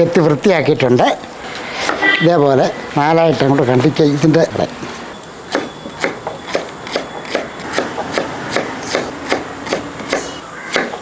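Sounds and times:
knife chopping on wooden board: 5.5s - 11.0s.

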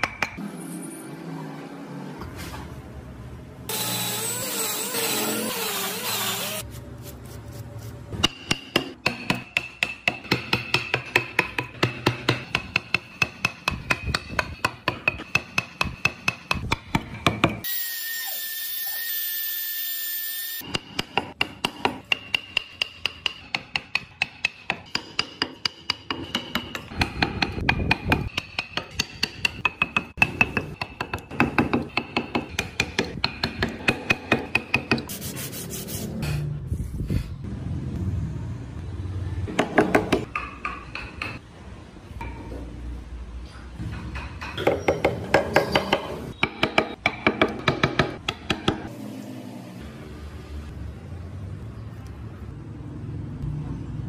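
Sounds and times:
mallet tapping on chisel: 8.2s - 17.6s, 20.7s - 35.1s, 39.5s - 41.4s, 43.9s - 48.9s.

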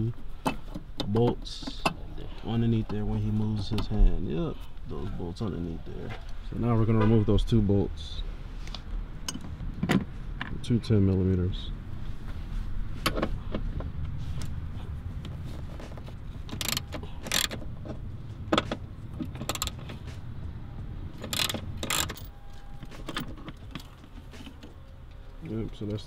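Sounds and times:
low background rumble: 0.0s - 26.0s
metallic clicks of hand tools: 16.5s - 17.6s, 21.2s - 22.2s.

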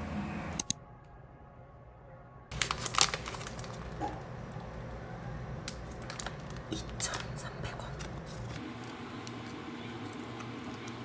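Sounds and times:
food wrapping crinkling: 2.5s - 11.0s.

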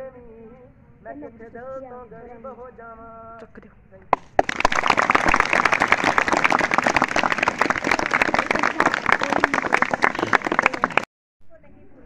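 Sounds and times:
audience applauding: 4.2s - 11.1s.

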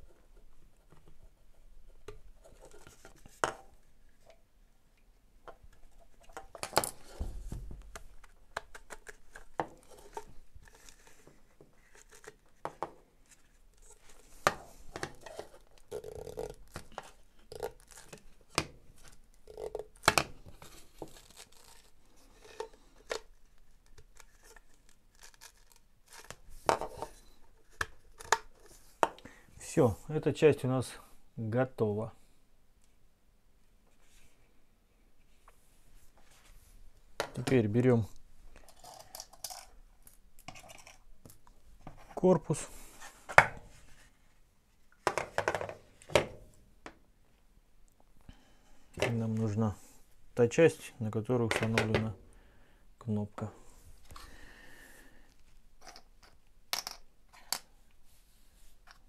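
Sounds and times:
plastic parts clicking and knocking: 5.4s - 13.0s, 22.4s - 29.3s, 45.0s - 47.0s, 55.8s - 57.7s.

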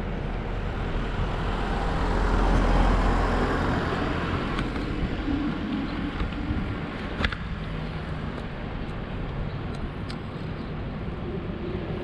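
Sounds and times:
van passing by: 0.0s - 9.4s.

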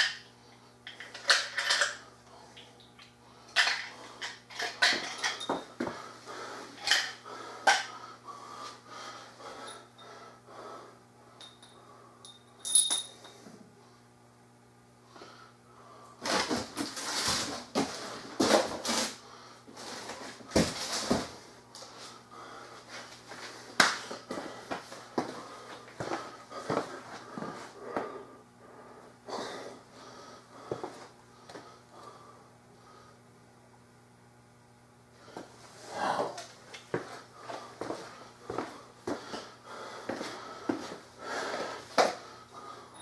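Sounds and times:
steady low hum: 0.0s - 43.0s
clicks and clinks of parts: 0.9s - 2.0s, 2.6s - 5.7s, 6.8s - 7.9s, 11.4s - 13.4s
rustling and scuffing: 36.9s - 39.3s.

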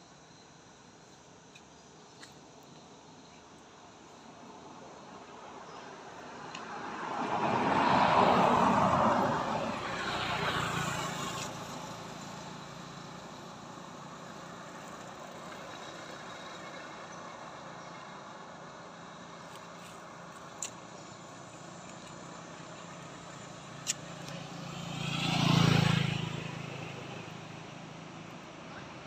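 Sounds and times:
vehicle driving past: 22.2s - 28.3s.

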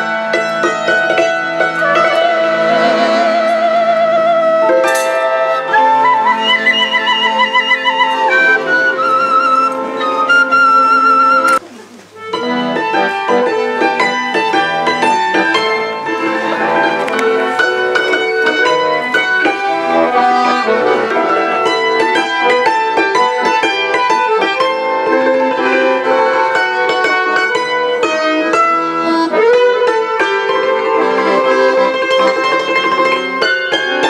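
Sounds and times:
accordion tones: 0.0s - 34.0s
hammered dulcimer notes: 0.0s - 34.0s.

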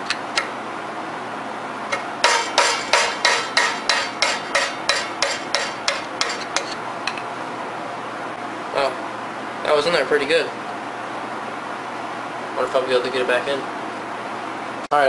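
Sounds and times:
hammer tapping on metal: 2.2s - 6.7s.

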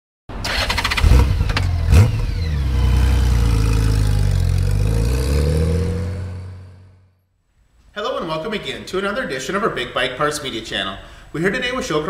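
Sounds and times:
motorcycle engine starting and idling: 0.4s - 6.6s
engine revving: 0.5s - 7.1s.

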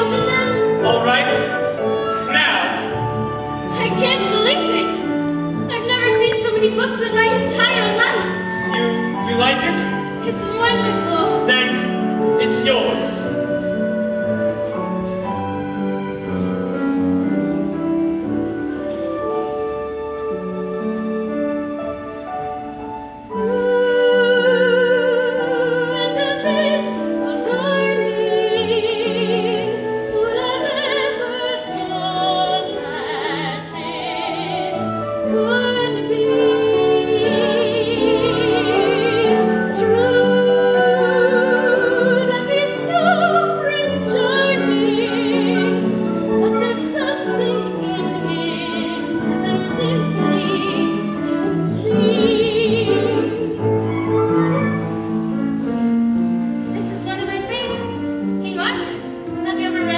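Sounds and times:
woman singing with vibrato: 0.0s - 2.3s, 3.4s - 9.1s, 23.3s - 54.7s
instrumental accompaniment: 0.0s - 59.9s.

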